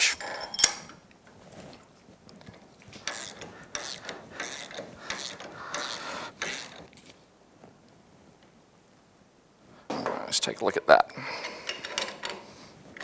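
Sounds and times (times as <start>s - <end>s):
ratchet wrench clicking: 3.0s - 6.8s.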